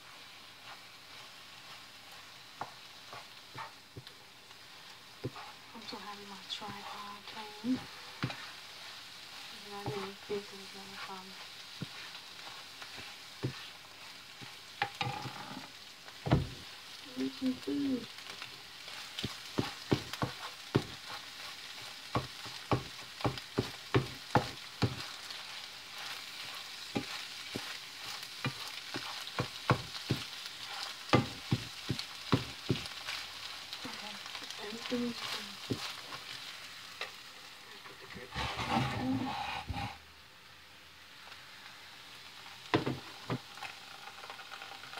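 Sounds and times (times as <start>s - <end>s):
spatula scraping pan: 0.0s - 4.1s, 4.7s - 37.2s, 38.0s - 40.0s
eggs sizzling in frying pan: 0.0s - 44.9s
spatula tapping pan: 0.6s - 4.2s, 6.6s - 8.6s, 9.3s - 15.6s, 16.2s - 16.6s, 18.2s - 36.3s, 42.7s - 43.5s.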